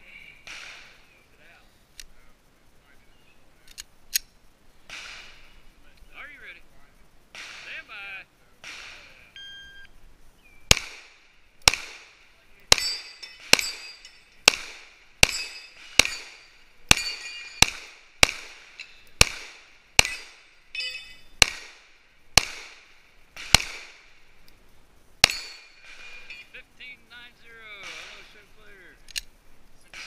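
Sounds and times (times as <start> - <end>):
pistol shots: 0.4 - 1.0, 4.9 - 5.4, 7.3 - 7.8, 8.6 - 9.2, 10.7 - 20.4, 21.4 - 24.1, 25.2 - 26.2, 27.8 - 28.4
metallic ring of steel targets: 12.7 - 14.6, 15.2 - 17.8, 20.0 - 21.4, 25.2 - 26.5.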